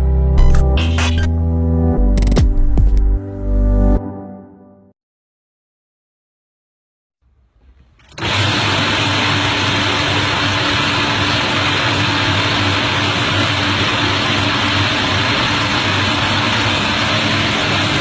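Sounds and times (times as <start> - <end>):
fish cleaning machine motor hum: 8.1 - 18.0.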